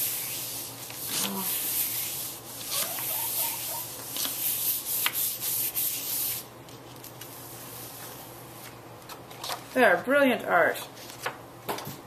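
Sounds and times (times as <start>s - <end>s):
hand rubbing paper: 0.0s - 6.4s.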